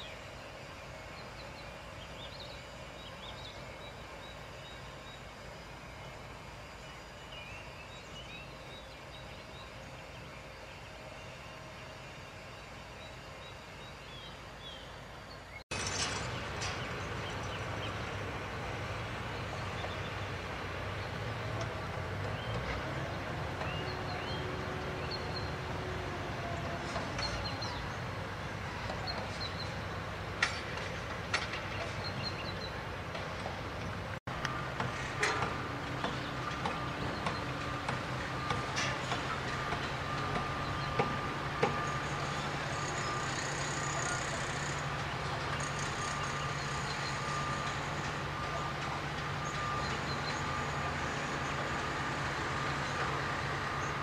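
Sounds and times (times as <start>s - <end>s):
low machine rumble: 0.0s - 54.0s
sharp knocks and clanks: 30.4s - 32.1s, 34.8s - 41.9s.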